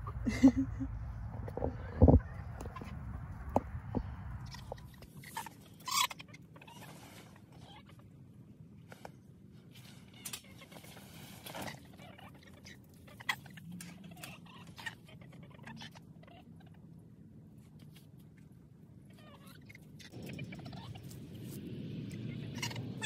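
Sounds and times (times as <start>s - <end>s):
chickens clucking: 1.3s - 8.1s.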